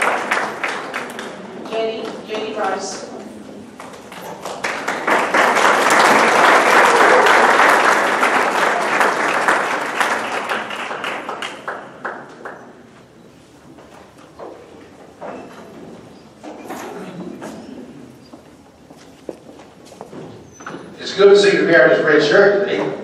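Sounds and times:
audience applauding: 0.0s - 1.7s, 3.8s - 12.8s.

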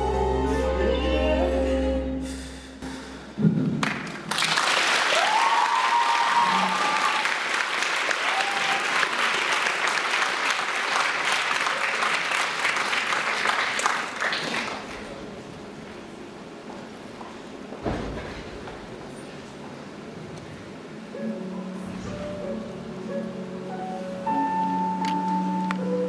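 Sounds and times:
audience applauding: 3.8s - 15.3s
person cheering: 5.1s - 7.4s, 8.2s - 9.2s.

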